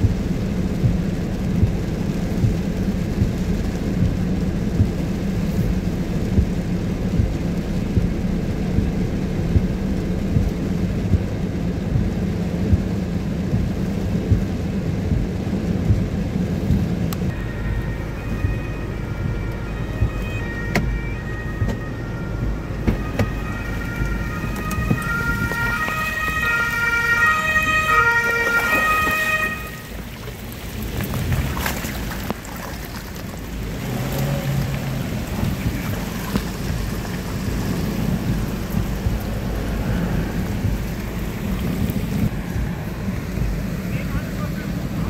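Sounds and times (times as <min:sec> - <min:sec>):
rushing water and wind: 0:00.0 - 0:45.0.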